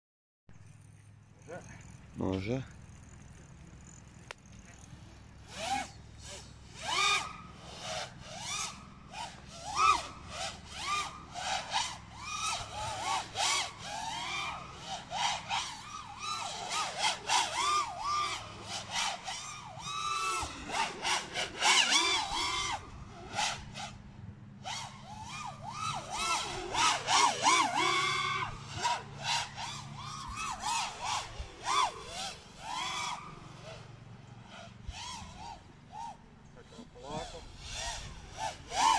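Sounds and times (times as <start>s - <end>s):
quadcopter motors whining: 0.6s - 38.9s.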